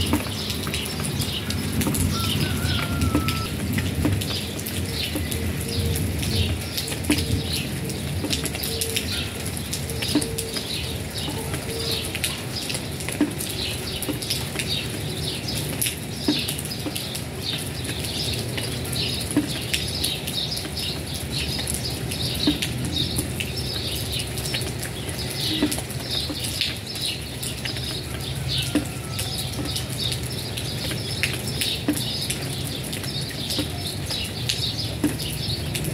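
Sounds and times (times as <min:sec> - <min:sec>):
rain pattering on concrete: 0:00.0 - 0:35.9
water dripping: 0:00.0 - 0:35.9.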